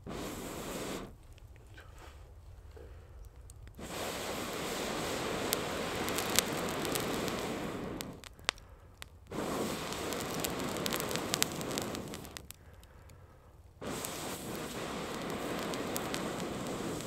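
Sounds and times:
campfire crackling and popping: 0.0s - 1.7s, 2.3s - 17.0s
steady rushing noise: 3.9s - 8.3s, 9.4s - 12.5s.

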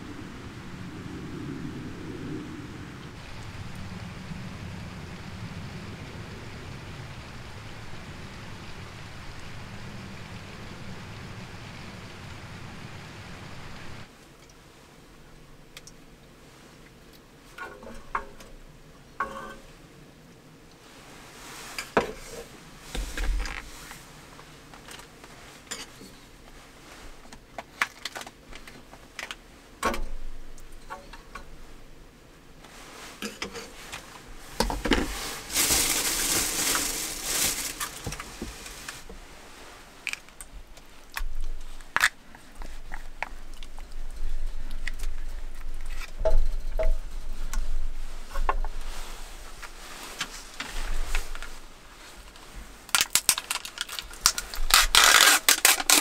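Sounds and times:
plastic rustling: 32.7s - 47.2s, 48.7s - 56.0s.

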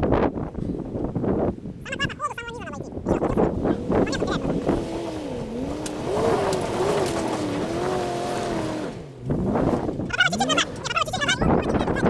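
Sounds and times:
car engine revving: 3.2s - 12.0s.

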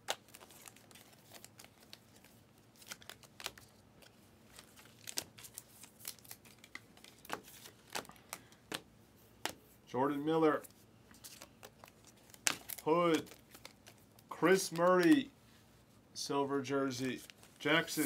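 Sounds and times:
trading cards flipping: 0.0s - 9.7s, 10.6s - 15.3s.

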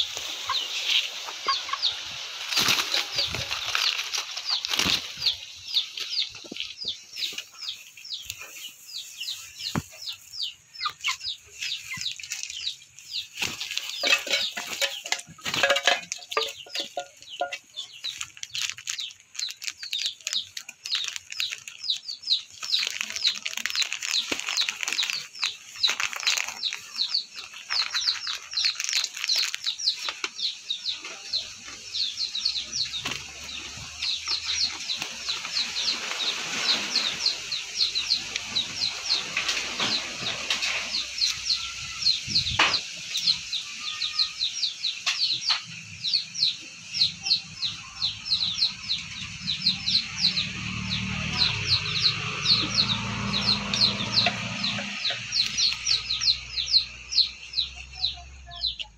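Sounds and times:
wing flapping and scuffling: 0.0s - 8.0s, 10.9s - 31.9s, 32.5s - 43.0s.

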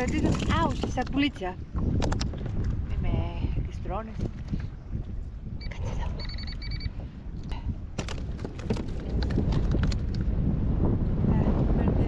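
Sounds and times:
wind buffeting microphone: 0.0s - 12.0s
high chirps: 6.2s - 7.0s.

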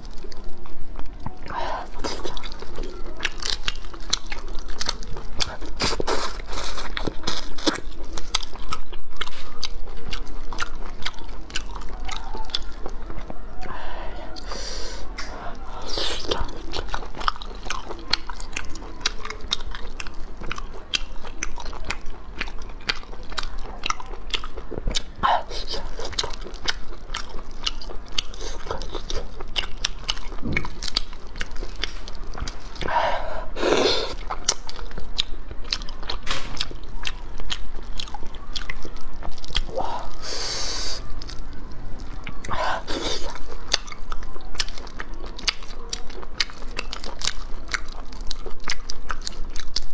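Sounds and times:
chewing: 0.0s - 49.9s
loud mouth sounds: 32.8s - 34.2s.

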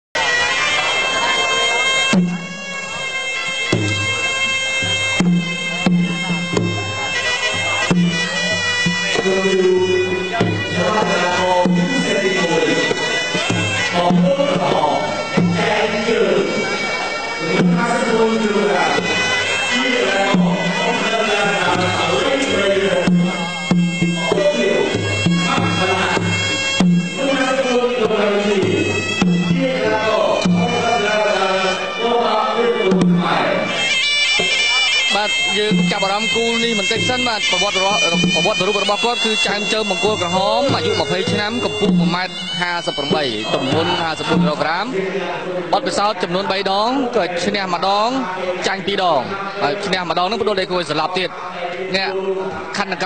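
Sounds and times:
reed oboe melody: 0.2s - 44.9s
hand drums striking: 2.1s - 2.9s, 3.5s - 15.9s, 20.0s - 31.1s, 32.9s - 33.4s, 34.4s - 44.8s.

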